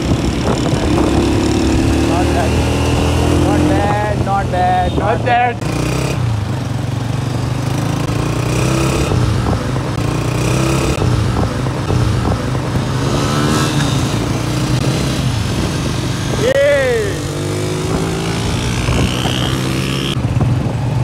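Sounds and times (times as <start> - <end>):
motorcycle engines droning: 0.0 - 21.0.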